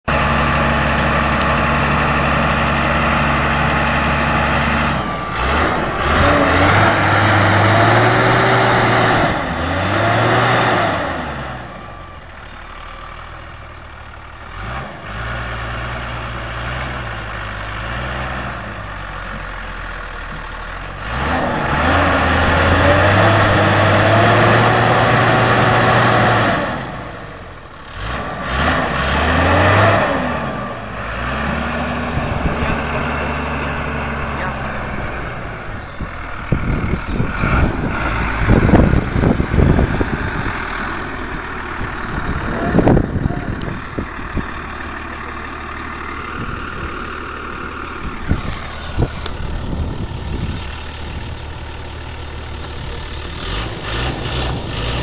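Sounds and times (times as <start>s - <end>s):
tractor diesel engine revving: 0.0s - 55.0s
wheels digging into soil: 48.2s - 50.6s.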